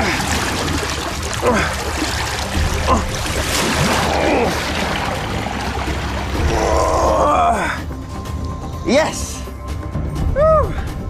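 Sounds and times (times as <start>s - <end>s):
river water splashing and dripping: 0.0s - 8.8s.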